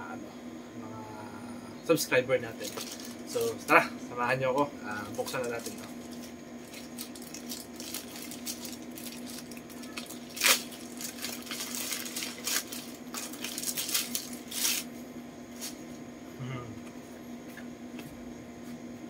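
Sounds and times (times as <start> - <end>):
plastic pouch crinkling and tearing: 2.6 - 3.2, 5.0 - 14.9.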